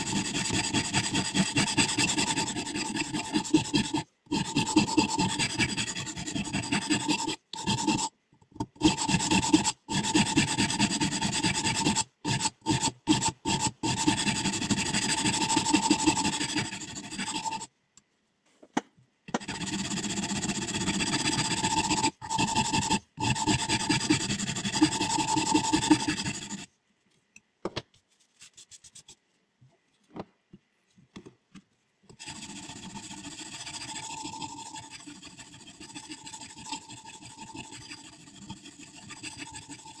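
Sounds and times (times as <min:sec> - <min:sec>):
sharpening stone rubbing scissor blade: 0:32.2 - 0:40.0.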